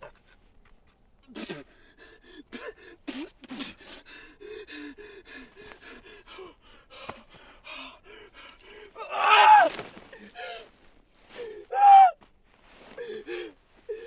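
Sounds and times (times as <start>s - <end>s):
man breathing in shaky gasps: 1.6s - 9.0s, 12.7s - 14.0s.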